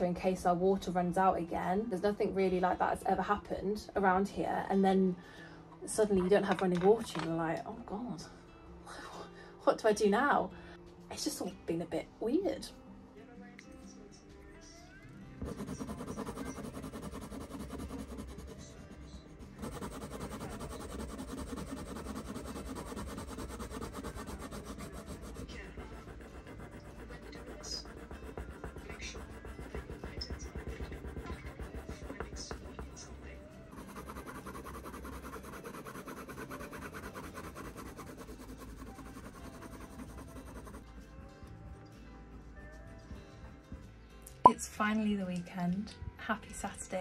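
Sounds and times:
pencil scratching on paper: 15.4s - 41.0s.

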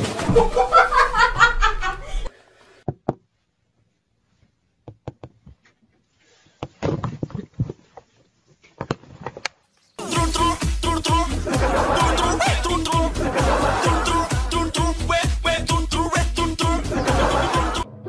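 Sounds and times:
person laughing hard: 0.2s - 2.3s, 11.2s - 14.7s, 16.7s - 18.0s.

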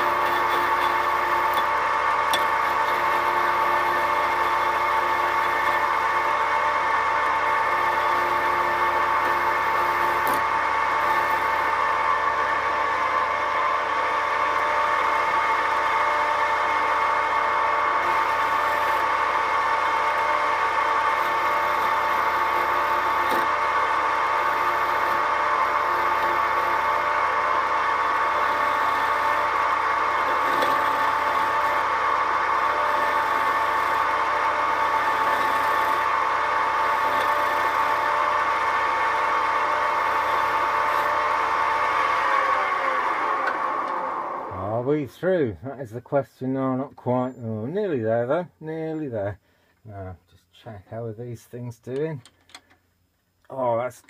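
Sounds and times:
wood lathe motor whine: 0.0s - 44.9s.

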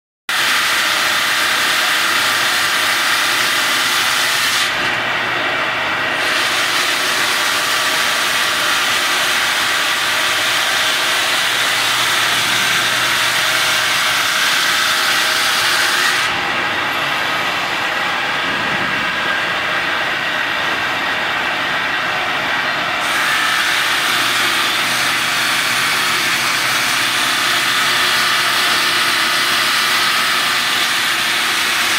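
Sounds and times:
saw blades grinding wet stone: 0.3s - 5.0s, 6.0s - 18.0s, 23.0s - 31.9s.

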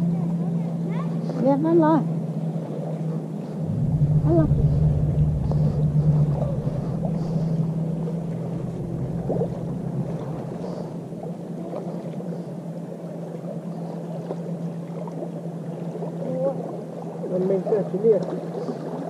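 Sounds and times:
motorboat engine droning: 0.0s - 19.0s.

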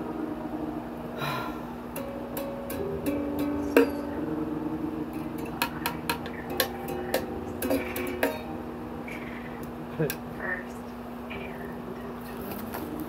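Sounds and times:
low hum: 0.0s - 13.0s
plucked string notes: 1.9s - 10.6s.

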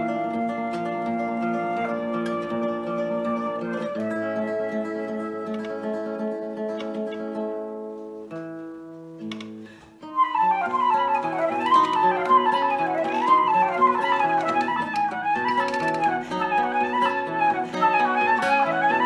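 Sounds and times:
classical guitar chords: 0.0s - 19.0s
flute runs: 10.2s - 19.0s.

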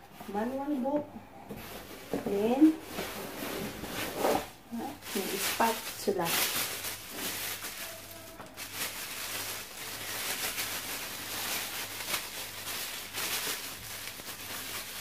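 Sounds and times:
plastic wrapping crinkling: 1.5s - 15.0s.

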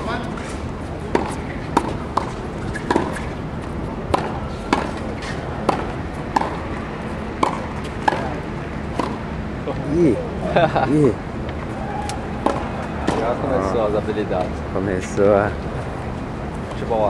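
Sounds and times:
tennis balls struck with rackets: 1.1s - 9.3s, 12.0s - 13.4s.

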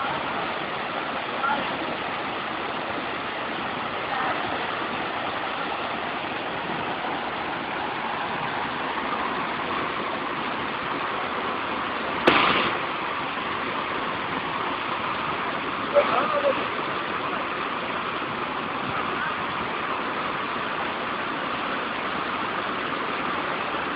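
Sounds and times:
waterfall rushing: 0.0s - 23.9s
sharp knock: 12.2s - 12.8s.

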